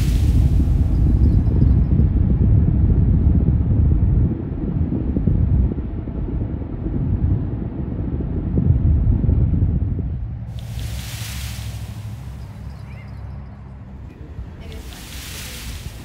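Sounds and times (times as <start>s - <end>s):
road noise: 0.0s - 2.2s, 5.7s - 16.0s
wind noise in car: 0.0s - 16.0s.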